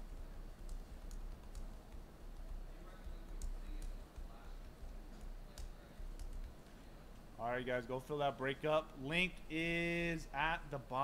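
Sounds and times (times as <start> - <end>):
low steady hum: 0.0 - 11.0
keyboard typing clicks: 0.1 - 7.3.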